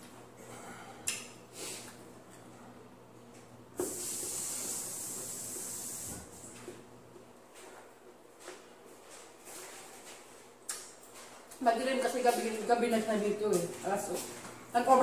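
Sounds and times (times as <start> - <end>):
steady high hiss: 3.8 - 6.6.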